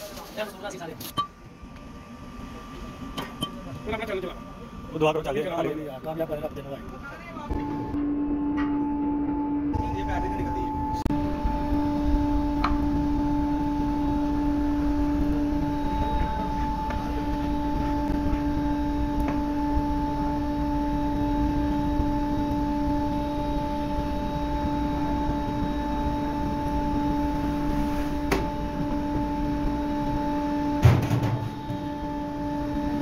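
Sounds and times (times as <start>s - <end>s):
furnace fire rumbling: 0.0s - 33.0s
electric air blower humming: 7.3s - 33.0s.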